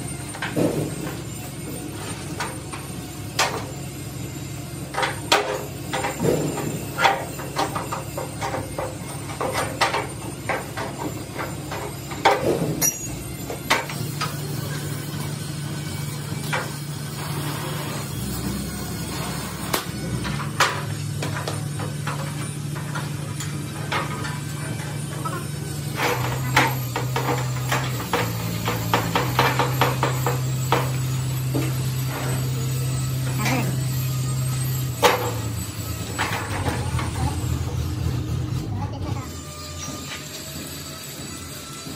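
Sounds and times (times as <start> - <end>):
hand tools tapping metal: 4.9 - 15.4, 19.6 - 37.5.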